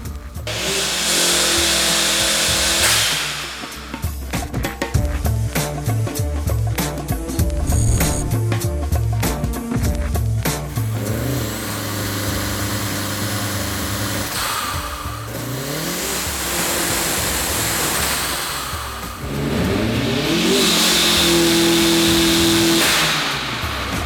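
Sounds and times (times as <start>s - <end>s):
turbocharged car engine revving: 0.4s - 4.4s, 7.3s - 8.5s, 10.7s - 24.0s
blow-off valve hiss: 0.5s - 4.2s.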